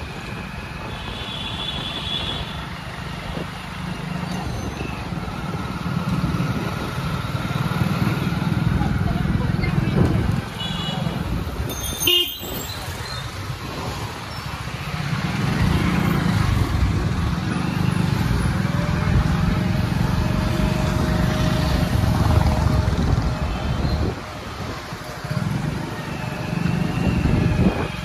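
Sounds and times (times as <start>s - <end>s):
traffic engine rumble: 0.0s - 28.0s.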